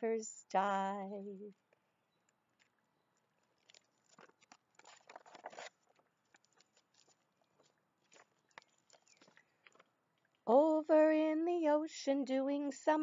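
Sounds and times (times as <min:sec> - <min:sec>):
paper rustling: 0:03.5 - 0:09.9.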